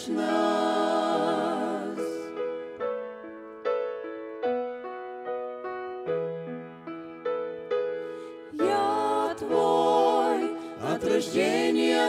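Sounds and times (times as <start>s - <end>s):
voices singing with vibrato: 0.0s - 2.4s, 8.5s - 12.0s
piano slow chords: 0.0s - 12.0s.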